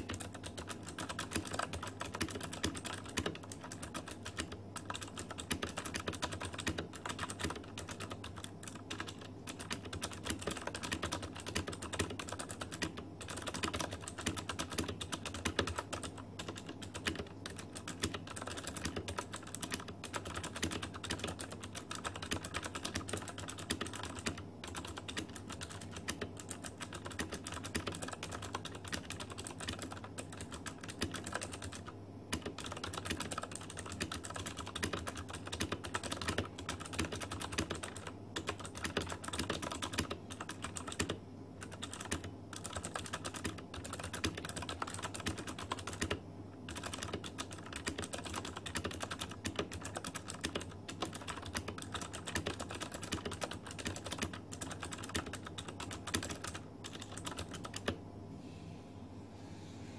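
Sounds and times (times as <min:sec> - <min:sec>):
clicky mechanical keyboard typing: 0:00.0 - 0:58.0.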